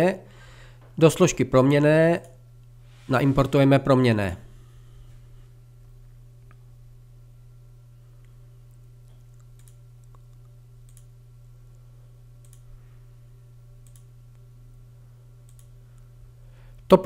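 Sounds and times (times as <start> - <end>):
steady low hum: 0.0 - 17.0
computer mouse clicks: 9.2 - 11.1, 12.4 - 12.6, 13.8 - 14.4, 15.5 - 15.7.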